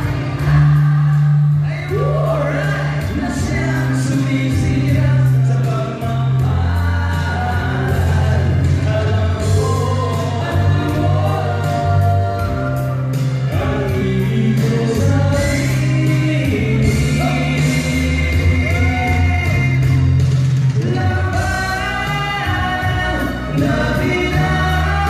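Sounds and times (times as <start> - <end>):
male vocal group singing: 0.0 - 20.2, 20.8 - 25.0
backing music with bass line: 0.0 - 25.0.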